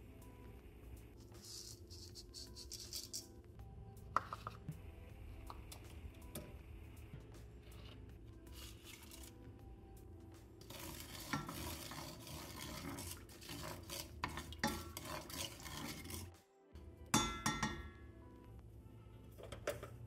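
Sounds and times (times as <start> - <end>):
wooden spoon scraping a metal pot: 7.6 - 9.4, 10.6 - 16.4.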